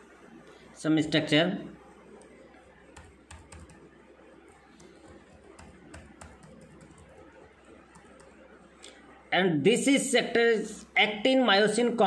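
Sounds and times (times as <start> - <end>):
low steady hum: 0.0 - 12.0
computer clicks: 2.1 - 9.0.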